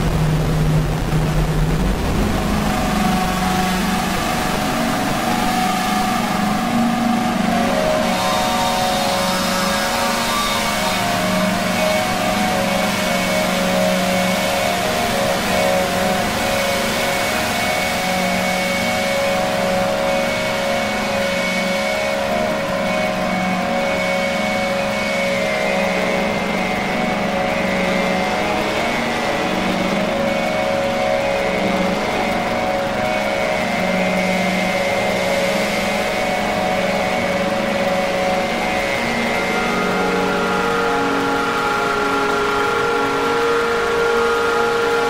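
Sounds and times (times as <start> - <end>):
droning held tones: 0.0 - 45.0.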